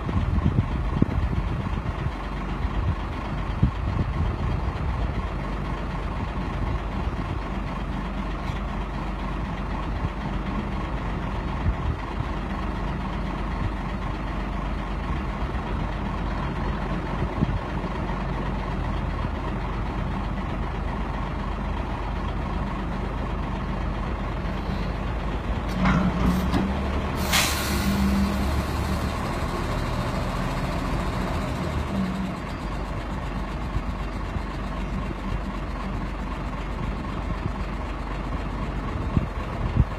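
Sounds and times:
crane engine running: 0.0 - 39.9
short sharp hisses: 27.2 - 28.2.

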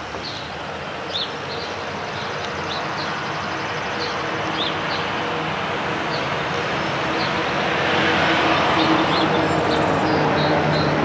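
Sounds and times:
rushing background noise: 0.0 - 11.0.

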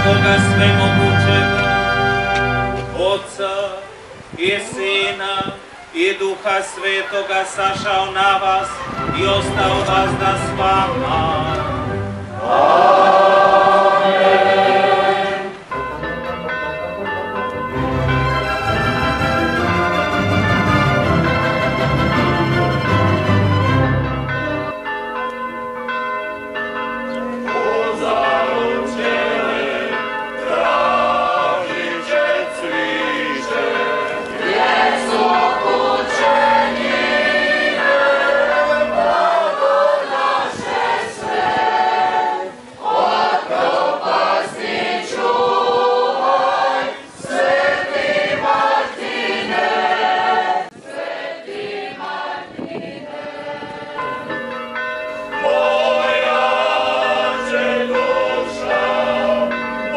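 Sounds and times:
church bells ringing: 0.0 - 3.4, 8.2 - 14.7, 15.6 - 43.9, 53.4 - 59.9
choir singing: 0.0 - 3.9, 6.2 - 25.5, 26.4 - 59.9.

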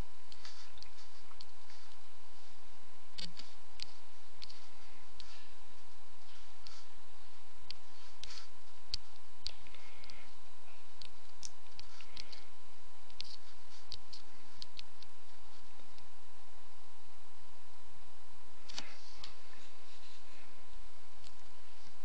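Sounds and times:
faint steady hiss: 0.0 - 22.0
computer mouse clicking: 3.1 - 5.4, 7.6 - 10.3, 11.0 - 16.1.

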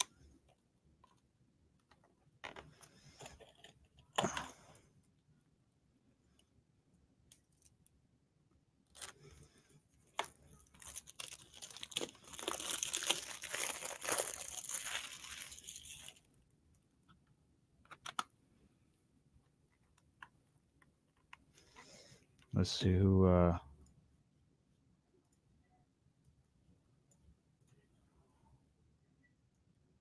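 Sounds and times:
packaging being torn and crinkled: 8.9 - 9.3, 10.1 - 16.3.

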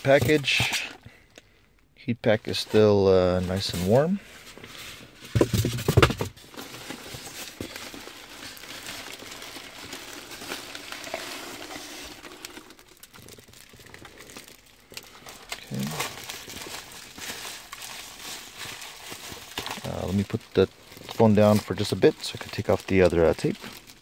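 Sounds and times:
foil bag crinkling: 6.4 - 24.0
packing peanuts rustling: 6.4 - 24.0.

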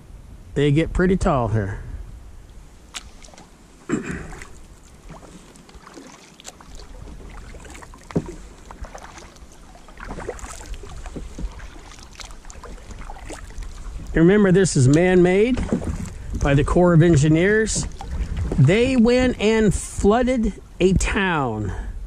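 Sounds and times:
paddle splashing in water: 2.6 - 19.9
water dripping: 2.9 - 14.2
small knocks: 8.1 - 9.0, 11.0 - 11.7.

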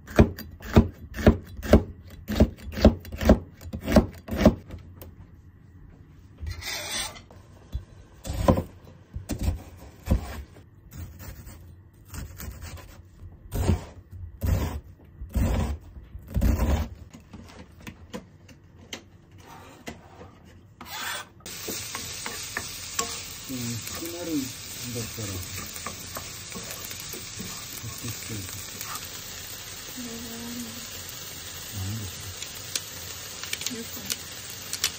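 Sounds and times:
knife chopping onion on board: 0.0 - 4.6
knife scraping cutting board: 6.5 - 7.3, 9.3 - 17.0, 19.4 - 23.2
vegetables sizzling in frying pan: 21.5 - 34.9.

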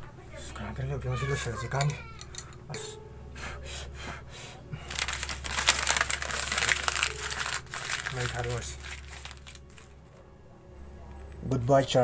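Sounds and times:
paper crumpling: 4.8 - 10.0
pencils clicking: 4.9 - 9.9.

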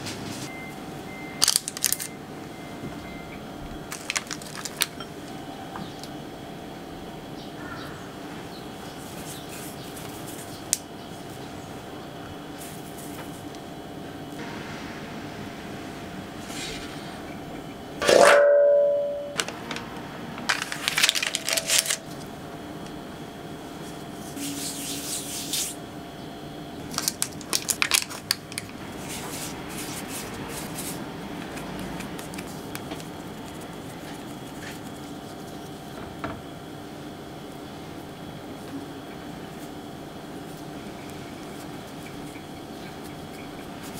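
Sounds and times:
room hum: 0.0 - 43.9
hands rubbing dough: 9.0 - 11.4, 23.7 - 25.8, 27.0 - 36.0.

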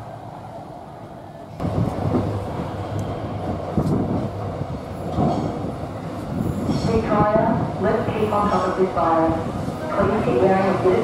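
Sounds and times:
train rumbling in tunnel: 0.0 - 11.0
train wheels thudding on track: 1.5 - 7.7.

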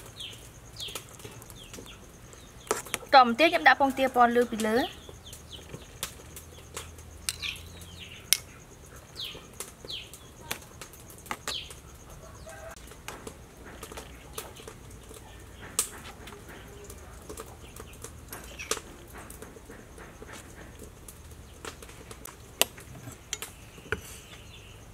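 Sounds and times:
bird chirps: 4.7 - 10.5.

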